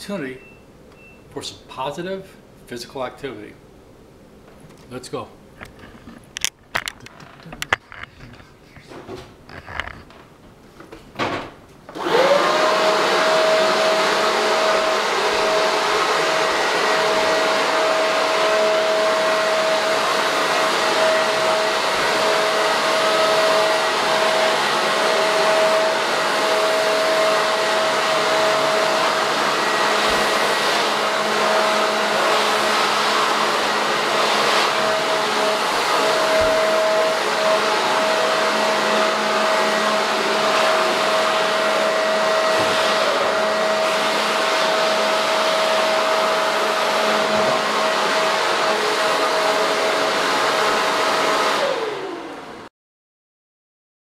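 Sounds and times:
leaf blower running: 11.9s - 52.6s.

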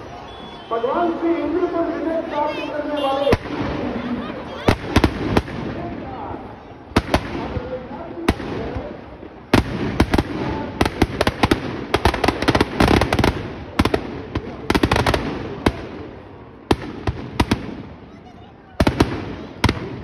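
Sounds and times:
firecrackers banging: 3.2s - 6.2s, 6.8s - 18.2s, 18.8s - 20.0s.

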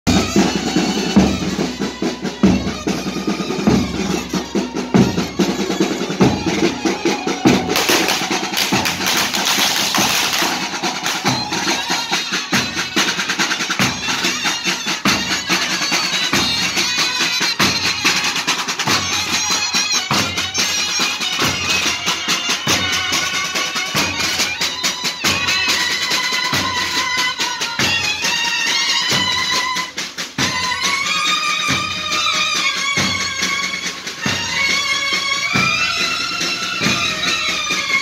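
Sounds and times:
horns playing a melody: 0.1s - 17.0s
marching band drums beating: 0.1s - 38.0s.

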